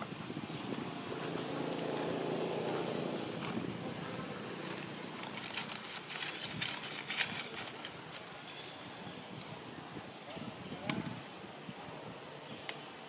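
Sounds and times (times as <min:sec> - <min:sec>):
light crackles and rustles: 0:00.0 - 0:13.0
vehicle engine droning: 0:00.5 - 0:05.8.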